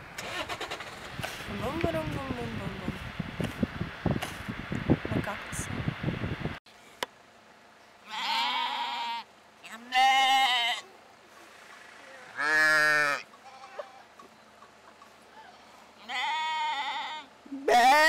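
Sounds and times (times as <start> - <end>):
lambs bleating: 8.0 - 10.9, 12.3 - 14.1, 16.0 - 18.0
sheep bleating deeply: 8.0 - 10.9, 12.3 - 14.1, 16.0 - 18.0.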